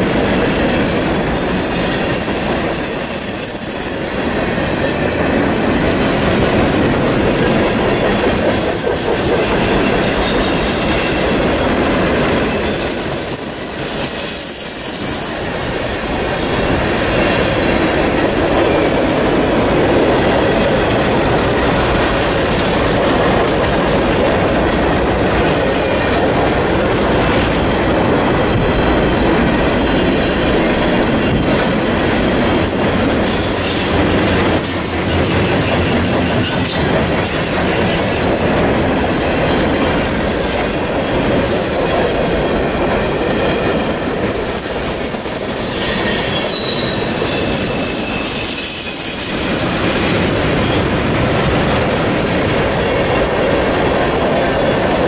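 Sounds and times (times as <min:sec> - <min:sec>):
train wheels rumbling on rail: 0:00.0 - 0:55.0
high-pitched wheel squeals: 0:00.4 - 0:11.5, 0:12.3 - 0:16.6, 0:30.6 - 0:52.8, 0:53.7 - 0:55.0.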